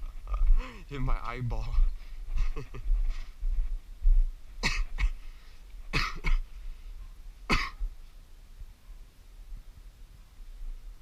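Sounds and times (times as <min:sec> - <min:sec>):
person coughing: 0:04.6 - 0:05.2, 0:05.9 - 0:06.4, 0:07.5 - 0:07.8.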